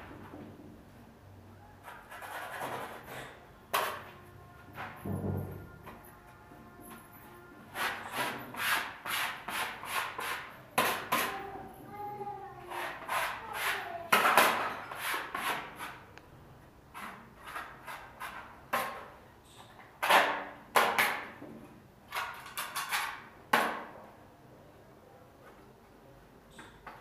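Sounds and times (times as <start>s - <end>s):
sandpaper scraping plaster: 1.8s - 4.0s, 7.7s - 11.4s, 12.6s - 16.0s, 16.9s - 18.5s.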